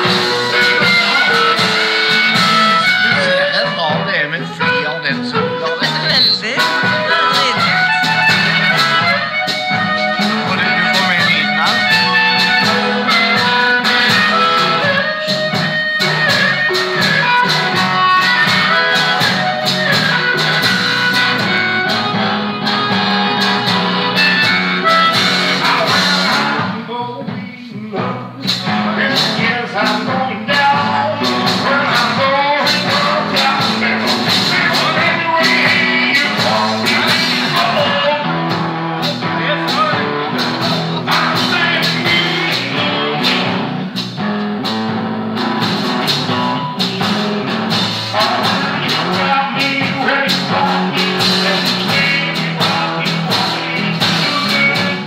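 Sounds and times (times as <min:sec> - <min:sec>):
blues electric guitar: 0:00.0 - 0:55.0
stomped bass drum beat: 0:00.0 - 0:55.0.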